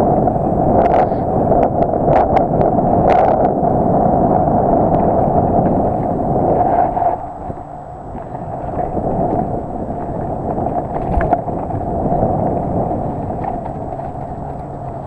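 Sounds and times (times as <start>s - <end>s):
wind rumble on microphone: 0.0s - 15.0s
bike tyres and frame rattling: 4.8s - 15.0s.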